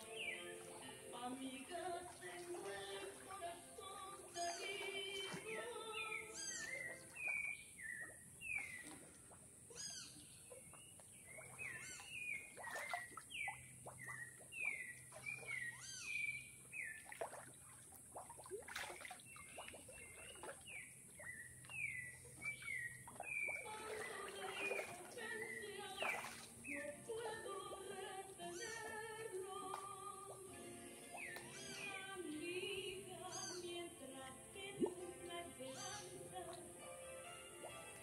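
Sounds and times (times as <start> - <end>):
water splashing from swimmer: 0.0 - 9.6, 10.5 - 15.9, 16.7 - 32.4
birds calling: 0.0 - 17.2, 19.2 - 29.7, 30.9 - 33.8, 35.6 - 36.5.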